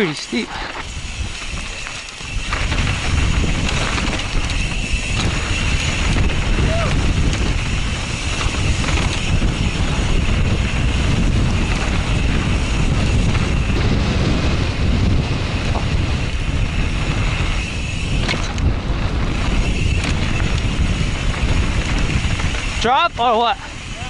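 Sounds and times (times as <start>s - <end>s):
tyres rolling on dirt: 0.0s - 24.0s
wind rushing over microphone: 0.0s - 24.0s
bike knocking over bumps: 1.8s - 14.6s.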